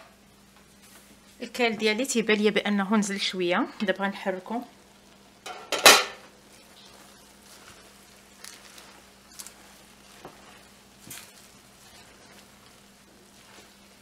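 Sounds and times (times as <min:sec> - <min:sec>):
faint sizzle: 0:00.0 - 0:14.0
leaves squishing and rustling: 0:06.4 - 0:14.0.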